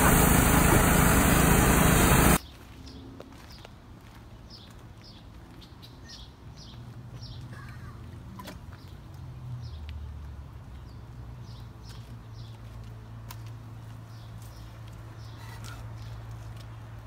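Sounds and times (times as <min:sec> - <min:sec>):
steady low rumble: 0:00.0 - 0:02.4.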